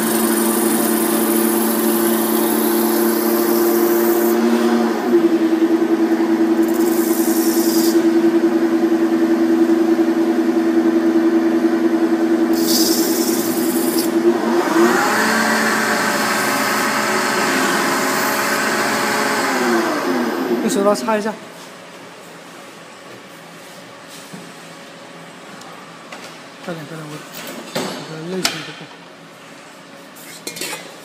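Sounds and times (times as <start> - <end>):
lathe machine hum: 0.0 - 20.9.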